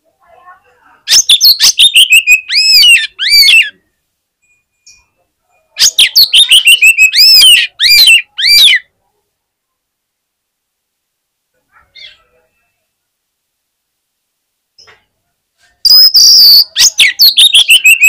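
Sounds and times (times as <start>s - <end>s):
magpie-robin singing: 1.1s - 3.8s, 5.8s - 8.9s, 15.8s - 18.0s.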